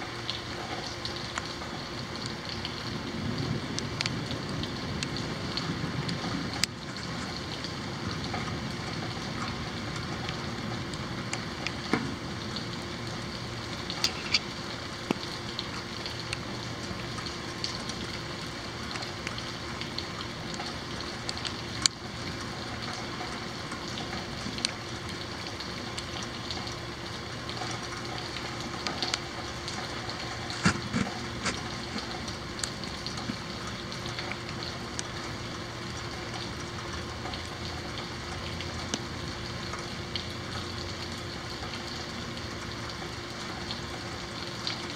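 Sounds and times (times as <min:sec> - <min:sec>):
raindrops ticking on surfaces: 0:00.0 - 0:44.9
steady rain falling: 0:00.0 - 0:44.9.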